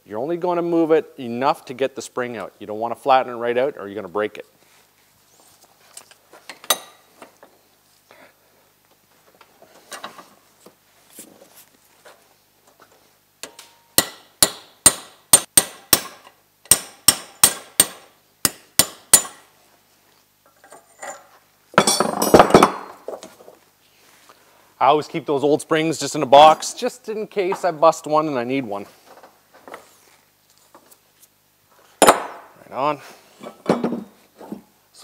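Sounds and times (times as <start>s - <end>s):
hammer striking steel punch: 13.4s - 19.4s, 32.0s - 32.5s.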